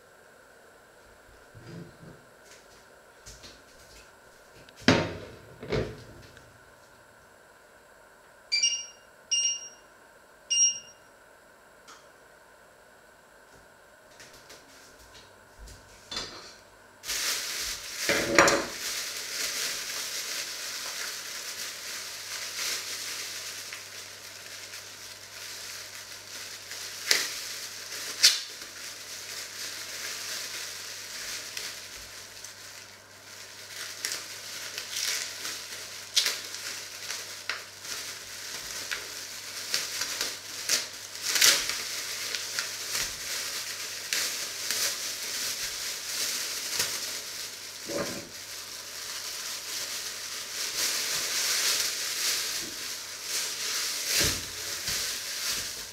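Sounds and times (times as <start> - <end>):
plastic bag crinkling: 17.0 - 55.9.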